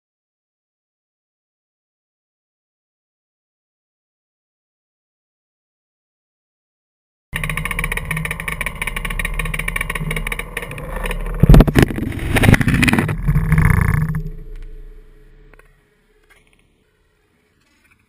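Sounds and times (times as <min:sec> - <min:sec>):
loud knocks: 0:07.4 - 0:15.6
vehicle engine running: 0:07.4 - 0:16.4.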